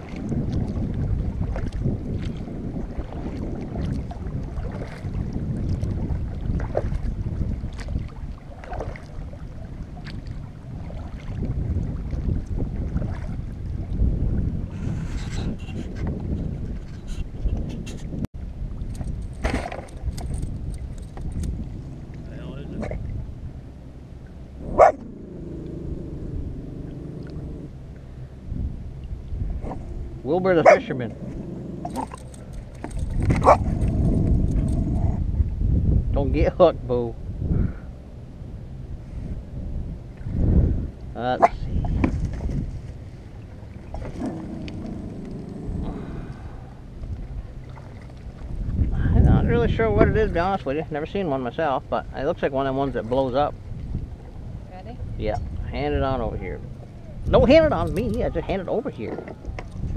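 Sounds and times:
paddle splashing in water: 0.0s - 14.0s, 18.7s - 20.2s, 30.6s - 34.1s, 41.8s - 48.9s
wind buffeting microphone: 0.0s - 59.9s
dog barking: 24.7s - 25.0s, 30.6s - 30.8s, 33.4s - 33.6s.

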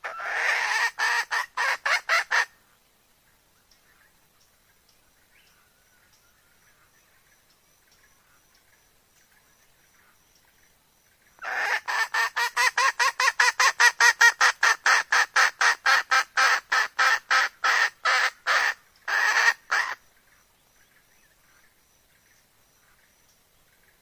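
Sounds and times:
hen cackling: 0.0s - 2.6s, 11.4s - 20.0s.

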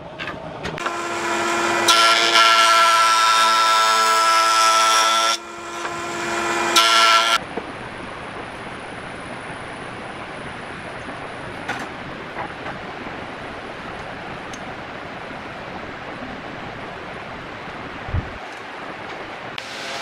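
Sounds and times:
table saw cutting wood: 0.8s - 7.4s, 19.6s - 20.0s.

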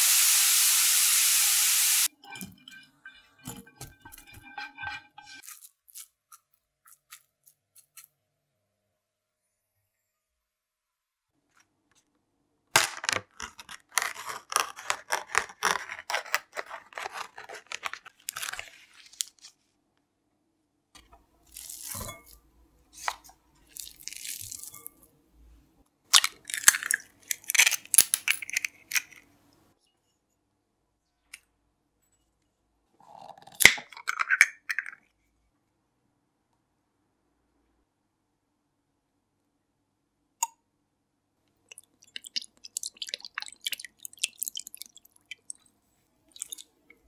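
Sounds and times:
plastic film crinkling and tearing: 12.8s - 19.6s.

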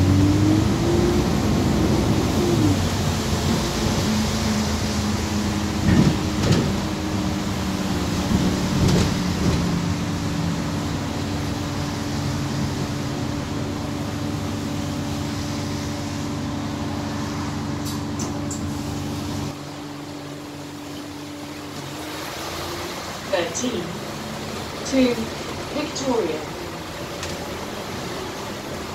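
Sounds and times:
bus drivetrain whine: 0.0s - 28.9s
rattles and knocks: 5.8s - 6.9s.

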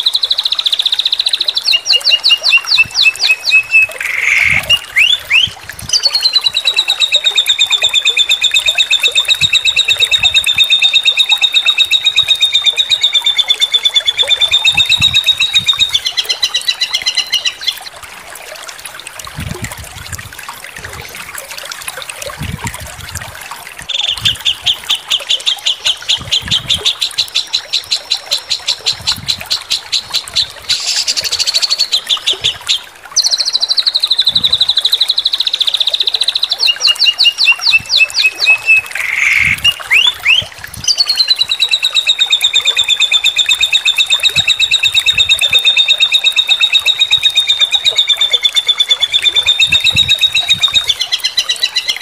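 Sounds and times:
songbird trilling song: 0.0s - 17.8s, 23.8s - 52.0s.

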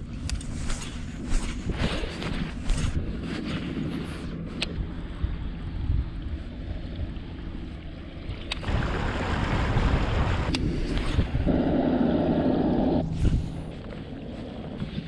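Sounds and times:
wind rumbling on microphone: 0.0s - 15.0s
fishing line whirring out: 8.2s - 15.0s.

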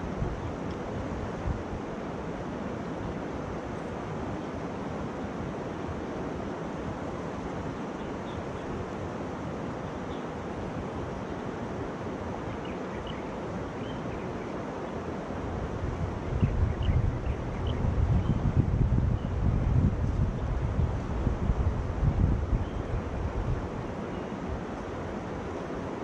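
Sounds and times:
wind buffeting microphone: 15.5s - 24.7s.

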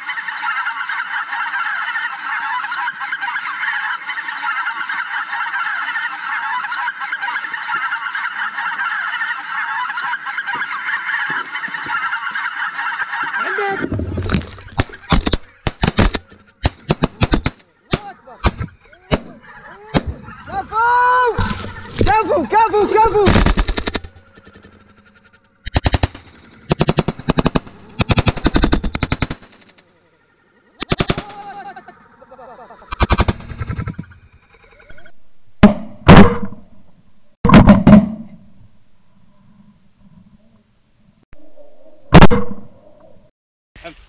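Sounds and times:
geese honking: 0.0s - 35.1s
sharp bangs and knocks: 13.8s - 22.3s, 23.1s - 25.0s, 25.6s - 29.8s, 35.6s - 36.7s, 37.5s - 38.4s.

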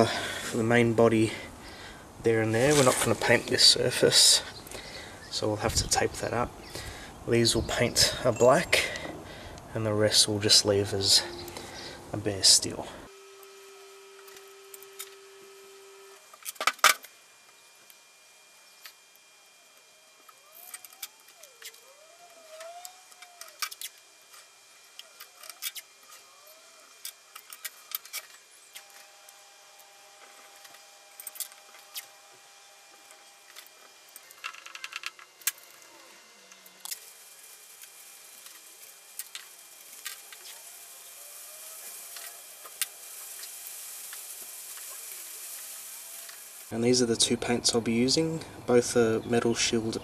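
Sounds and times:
masking tape crackling: 9.3s - 47.1s.

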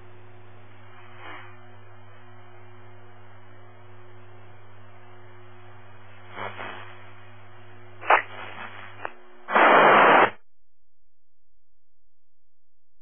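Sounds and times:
radio hiss and hum: 0.0s - 2.3s, 5.7s - 10.4s
loud burst of static: 6.3s - 7.0s, 8.0s - 10.4s
short radio crackle: 6.3s - 7.0s, 8.0s - 10.4s.

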